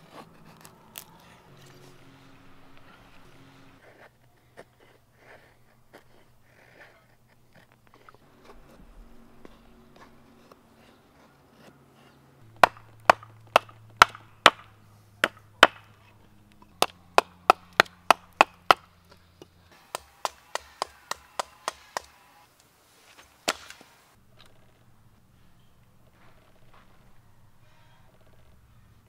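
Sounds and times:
knife chopping wood: 12.5s - 22.2s, 23.1s - 23.9s.

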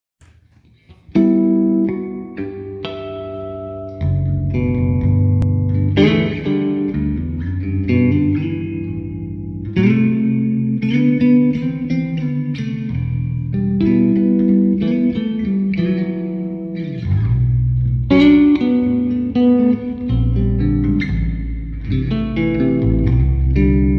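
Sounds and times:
bass guitar played with a pick: 0.9s - 23.9s.

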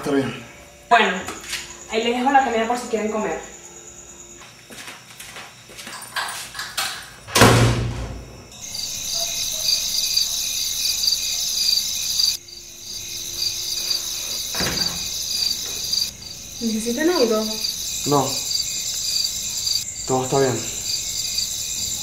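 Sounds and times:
crickets chirping: 0.0s - 22.0s
door slamming shut: 6.8s - 8.6s, 14.4s - 16.1s.

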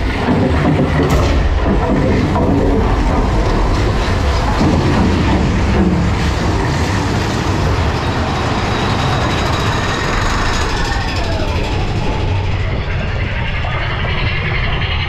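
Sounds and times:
cars clattering and rattling: 0.0s - 15.0s
coaster wheels rumbling: 0.0s - 15.0s.

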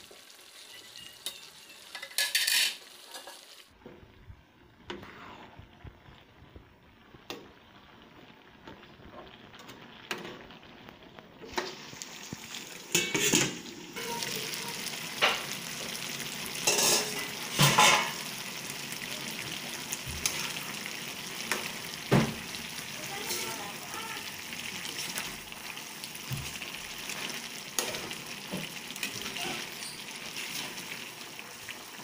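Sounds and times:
food sizzling in a wok: 0.0s - 32.0s
spatula scraping a pan: 1.2s - 3.6s, 4.9s - 5.6s, 16.6s - 18.3s.

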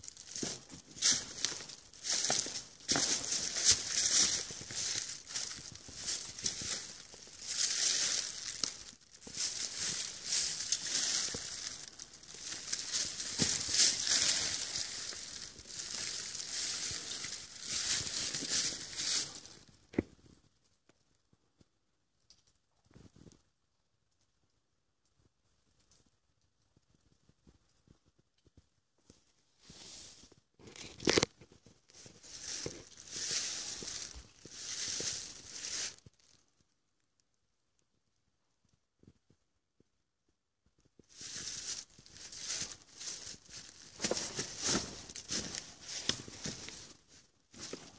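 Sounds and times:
footsteps crunching on dry leaves: 0.0s - 19.7s, 31.9s - 36.3s, 41.1s - 47.9s
sharp crackle: 0.0s - 21.0s
rustling crinkling noise: 0.0s - 24.3s, 25.0s - 37.9s, 40.6s - 47.9s.

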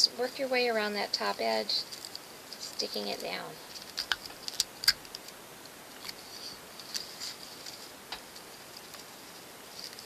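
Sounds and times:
paper strips crinkling: 3.6s - 5.4s, 6.0s - 10.0s.

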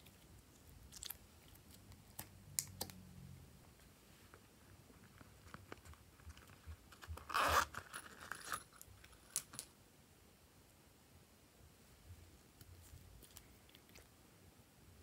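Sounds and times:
zipper pulled open: 7.2s - 8.7s.

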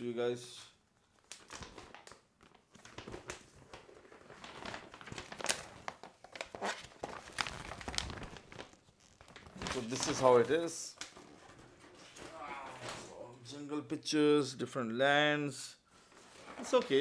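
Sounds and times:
playmat sheet rustling and crinkling: 1.2s - 13.1s.

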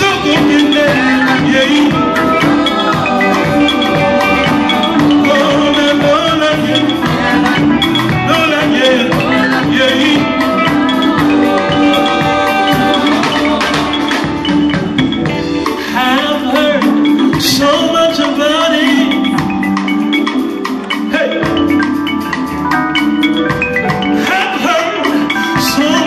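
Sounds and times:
women singing: 0.0s - 14.6s
drums and bass: 0.0s - 26.0s
electric guitar: 0.0s - 26.0s.

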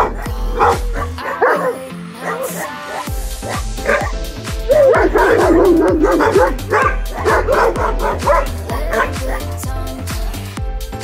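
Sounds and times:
background music with beat: 0.0s - 11.0s
dog whining and yipping: 4.7s - 9.2s.

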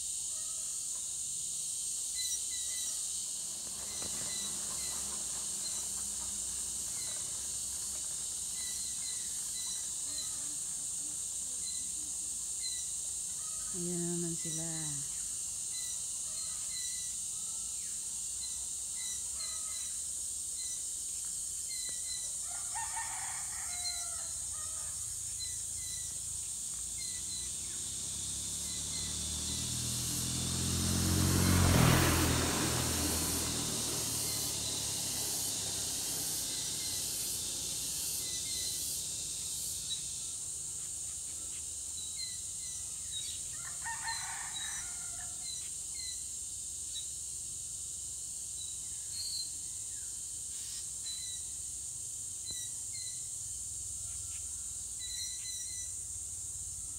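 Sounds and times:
high insect drone: 0.0s - 56.9s
engine passing: 3.1s - 11.0s, 25.8s - 46.5s
rooster crowing: 22.4s - 25.2s, 43.5s - 45.6s
small birds chirping: 25.1s - 30.4s.

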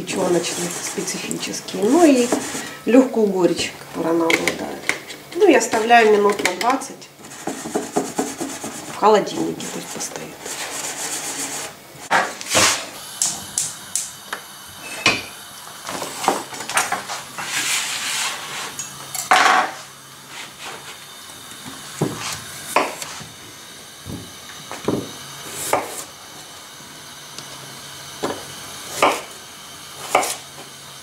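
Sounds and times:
frying pan on gas hob: 10.5s - 31.0s
knife on cutting board: 30.0s - 30.4s.

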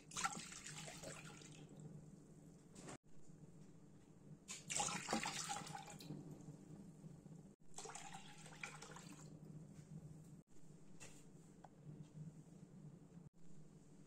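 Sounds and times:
liquid pouring and splashing: 0.0s - 1.8s, 4.5s - 6.5s, 7.7s - 9.4s.

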